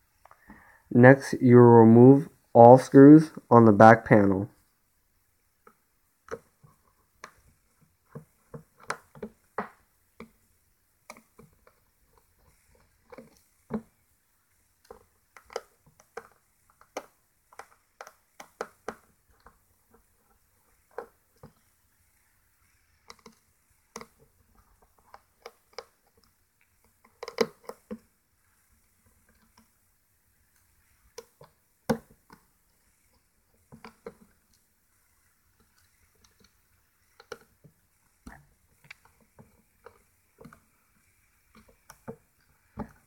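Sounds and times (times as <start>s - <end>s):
screwdriver clicking on screws: 27.0s - 28.0s.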